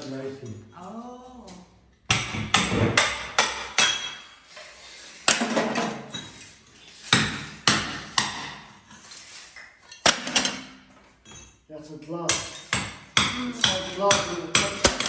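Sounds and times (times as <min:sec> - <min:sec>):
hammer striking steel chisel: 0:02.1 - 0:04.3, 0:12.3 - 0:15.0.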